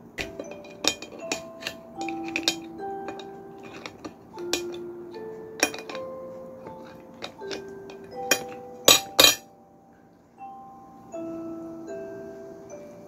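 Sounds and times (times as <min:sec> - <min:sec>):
soft background music: 0:00.0 - 0:13.0
chopsticks clinking on plate: 0:00.2 - 0:09.4.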